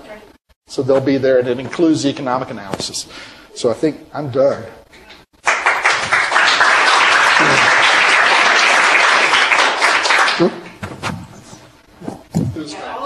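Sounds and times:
audience applauding: 0:05.4 - 0:10.8.

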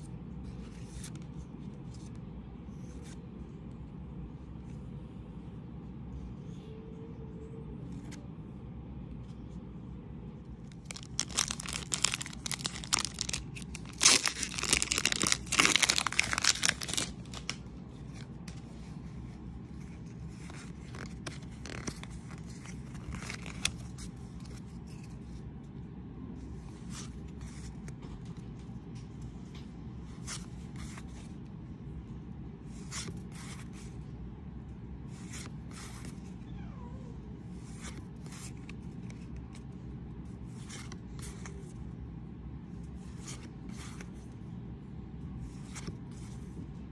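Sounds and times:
foil wrapper crinkling and tearing: 0:10.7 - 0:17.6, 0:20.9 - 0:23.8
cards sliding and rustling: 0:10.8 - 0:18.9, 0:19.8 - 0:25.2, 0:32.7 - 0:33.9, 0:35.1 - 0:36.3.

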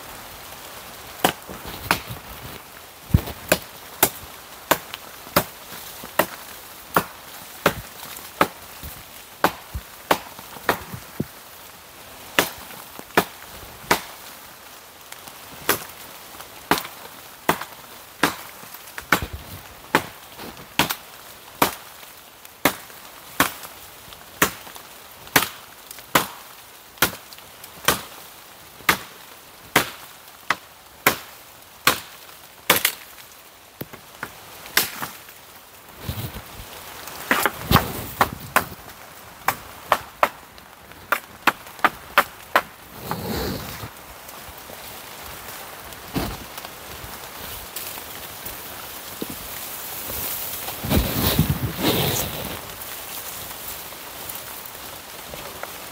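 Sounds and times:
blade chopping dry wood: 0:01.2 - 0:02.2, 0:03.1 - 0:08.6, 0:09.4 - 0:11.2, 0:12.4 - 0:12.6, 0:13.2 - 0:14.1, 0:17.5 - 0:20.2, 0:37.2 - 0:38.8, 0:41.0 - 0:43.8.

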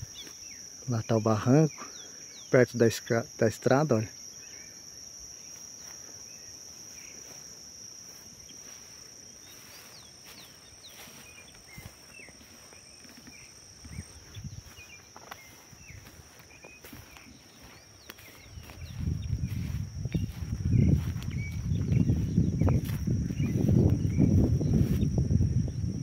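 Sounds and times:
insects droning: 0:00.0 - 0:26.0
bird chirps: 0:09.4 - 0:25.1.

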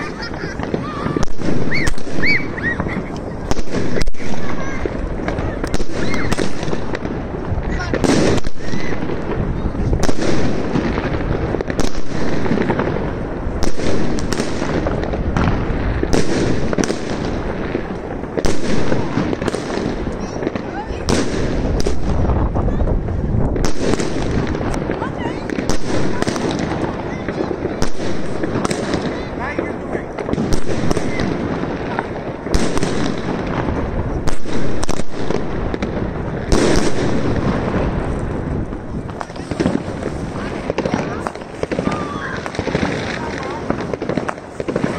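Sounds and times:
fireworks shells bursting: 0:00.0 - 0:22.2
fireworks crackling and rumbling: 0:00.0 - 0:44.9.

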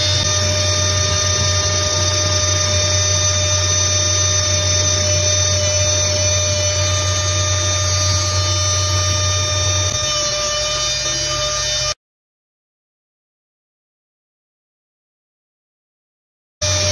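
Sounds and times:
rotary tool whining: 0:00.0 - 0:12.0, 0:16.6 - 0:16.9.

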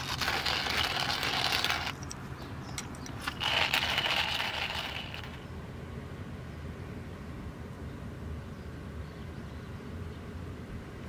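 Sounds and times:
hand coffee mill grinding beans: 0:00.0 - 0:05.4.

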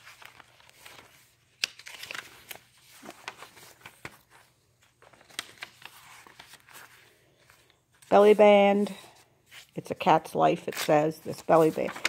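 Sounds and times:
paper pages rustling: 0:00.0 - 0:12.0
sharp paper snap: 0:01.5 - 0:02.6.

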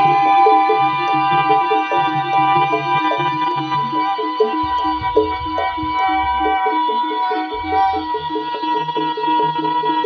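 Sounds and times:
steady held high tone: 0:00.0 - 0:09.2
low drum beats: 0:03.3 - 0:08.4
short stepped melody notes: 0:04.4 - 0:08.1.

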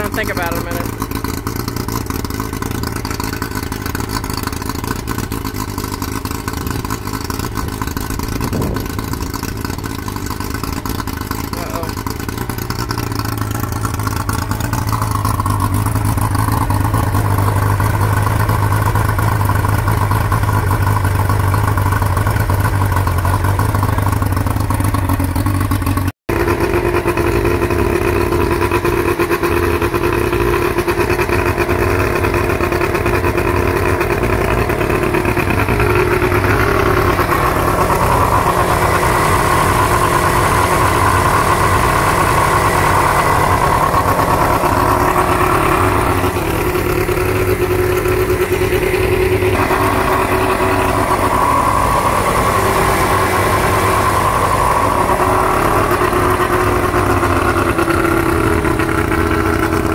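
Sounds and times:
outboard motor running: 0:00.0 - 0:59.9.

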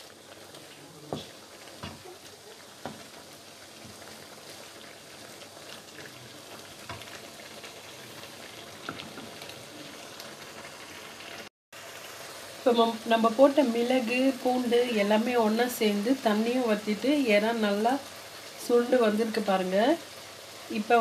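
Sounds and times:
prawns sizzling in a wok: 0:00.0 - 0:21.0
wooden spatula knocking pan: 0:01.1 - 0:02.2, 0:02.8 - 0:03.1.

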